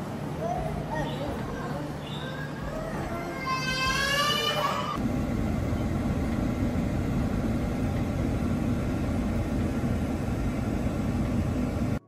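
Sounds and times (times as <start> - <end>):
vehicle engine and road rumble: 5.0 - 12.0.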